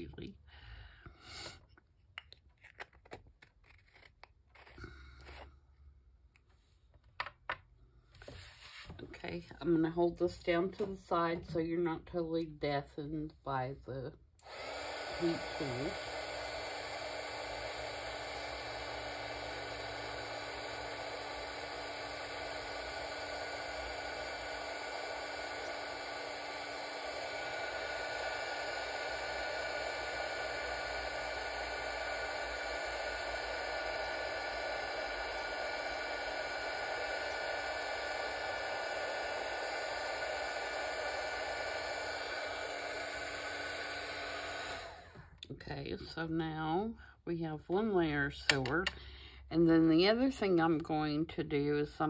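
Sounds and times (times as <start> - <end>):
heat tool fan hiss: 14.4 - 45.2.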